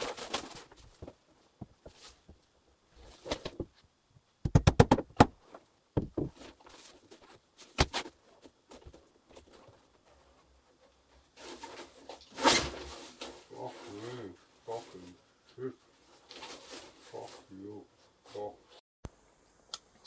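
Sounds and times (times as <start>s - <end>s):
knocks on wooden floorboards: 6.0s - 6.4s.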